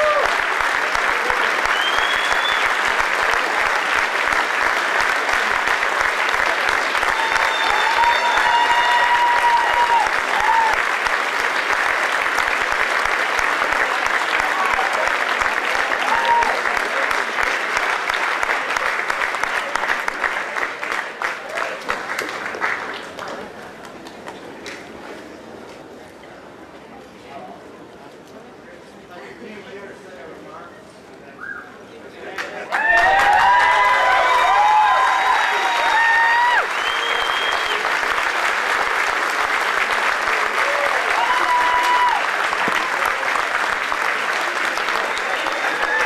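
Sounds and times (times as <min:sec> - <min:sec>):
audience applauding: 0:00.0 - 0:24.8, 0:32.3 - 0:46.0
cheers and whistles: 0:01.6 - 0:02.8, 0:06.9 - 0:10.8, 0:32.7 - 0:38.0, 0:40.6 - 0:42.3, 0:45.6 - 0:46.0.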